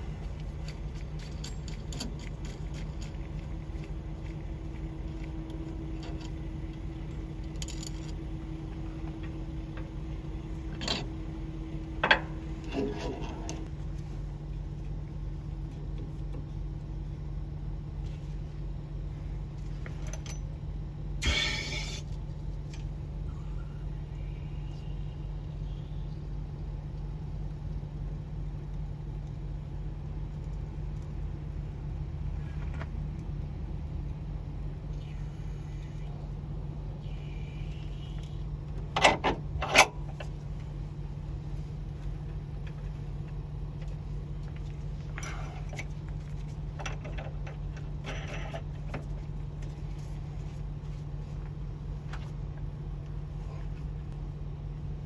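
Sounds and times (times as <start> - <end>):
steady low hum: 0.0 - 55.0
short metallic rattle: 21.2 - 22.1.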